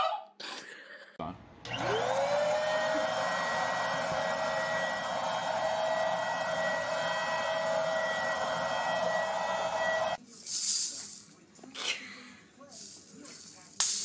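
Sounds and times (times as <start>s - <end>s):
vacuum cleaner running: 1.7s - 10.2s.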